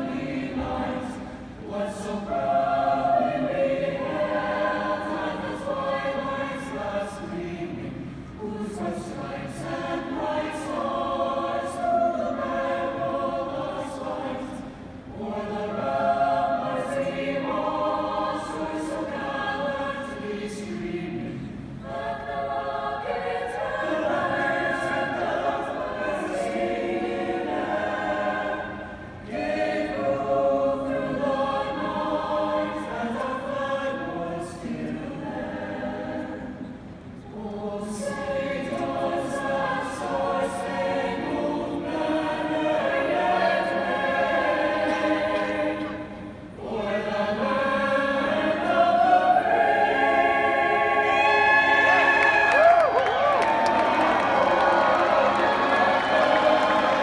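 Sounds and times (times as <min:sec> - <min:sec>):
choir singing: 0:00.0 - 0:57.0.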